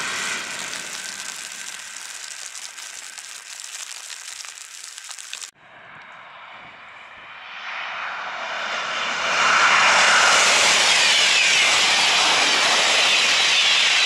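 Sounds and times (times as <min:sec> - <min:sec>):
high-speed train passing: 0:05.6 - 0:14.0.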